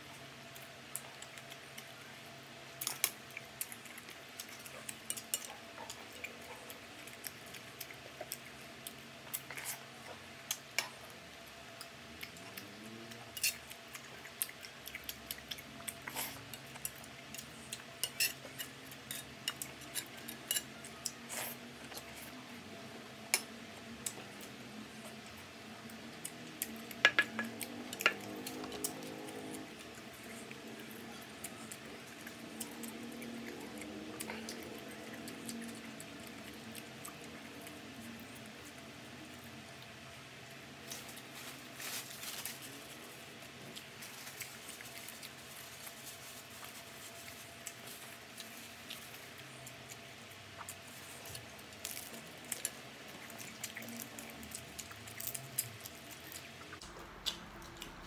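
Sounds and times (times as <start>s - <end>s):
cutlery clinking on a plate: 27.1s - 28.2s.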